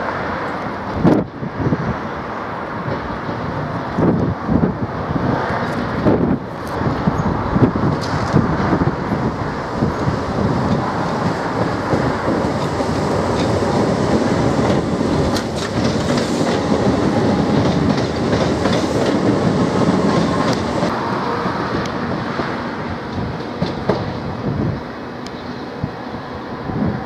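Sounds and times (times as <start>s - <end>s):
train wheels rumbling on track: 0.0s - 27.0s
wheels clicking over rail joints: 5.6s - 20.9s.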